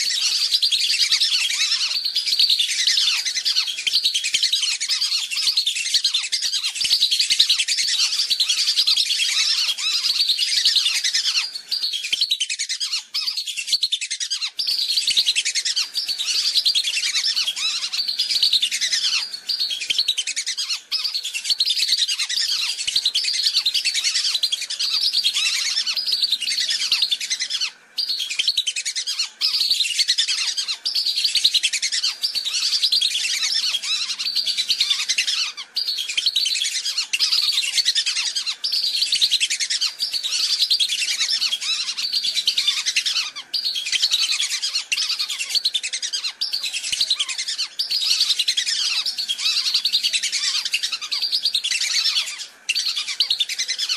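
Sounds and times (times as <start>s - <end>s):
ducks whistling: 0.0s - 53.9s.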